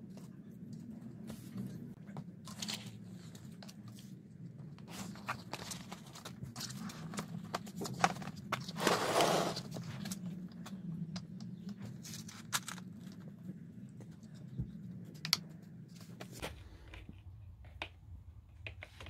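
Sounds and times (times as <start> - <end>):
rustling scrape: 4.8 - 10.2.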